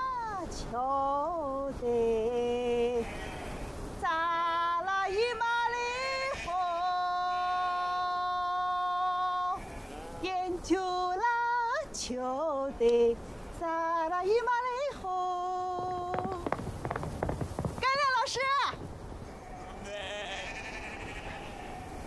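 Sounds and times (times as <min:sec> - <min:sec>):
woman singing slow melody: 0:00.0 - 0:03.4, 0:04.0 - 0:16.7.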